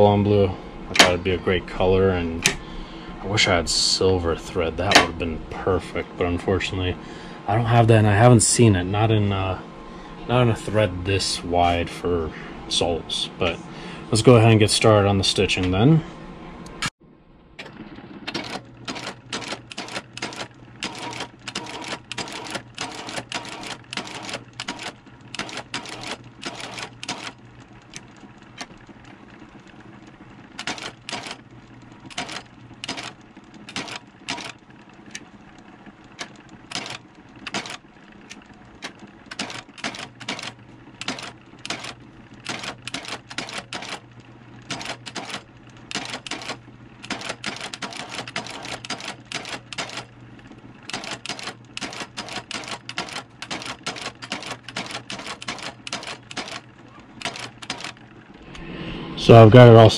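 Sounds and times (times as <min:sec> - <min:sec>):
machine motor humming: 0:00.0 - 0:59.9
stitching machine clacking: 0:04.8 - 0:05.2, 0:17.6 - 0:58.3.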